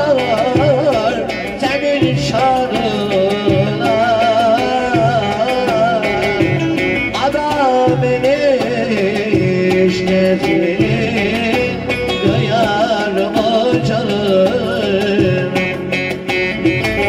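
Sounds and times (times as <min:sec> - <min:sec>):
man singing ornamented melody: 0:00.0 - 0:16.3
electric lute: 0:00.0 - 0:17.0
keyboard drum and bass rhythm: 0:00.0 - 0:17.0.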